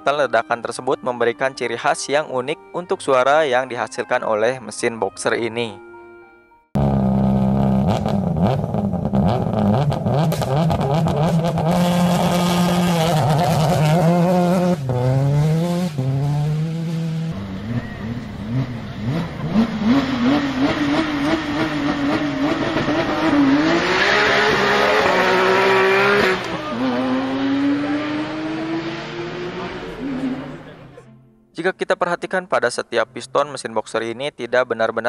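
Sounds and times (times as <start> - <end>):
rally car engine revving: 6.8 - 31.0
sports car engine accelerating: 6.8 - 31.0.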